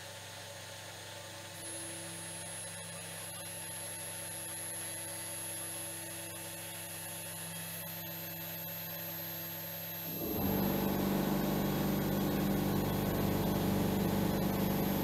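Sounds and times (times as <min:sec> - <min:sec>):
spindle whine: 0:10.1 - 0:15.0.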